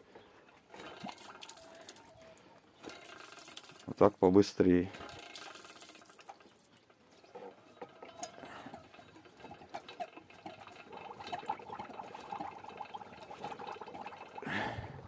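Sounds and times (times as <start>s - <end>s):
fuel splashing into plastic bottle: 0.6s - 4.1s, 4.8s - 7.0s.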